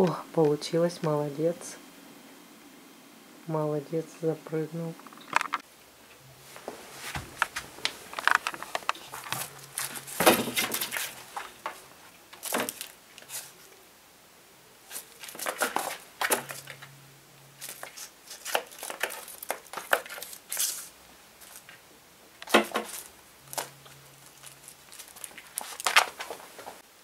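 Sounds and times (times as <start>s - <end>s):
rustling and crinkling: 5.0s - 13.8s, 14.8s - 26.9s.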